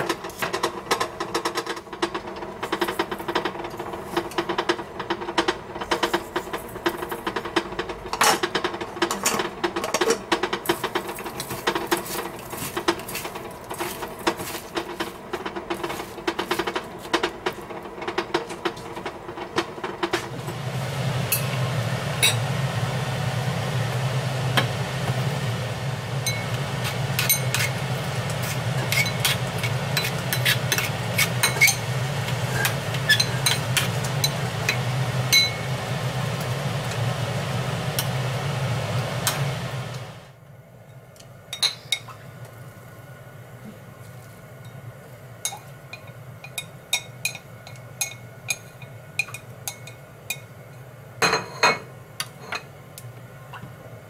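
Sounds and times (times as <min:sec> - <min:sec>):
steady low hum: 0:18.6 - 0:54.0.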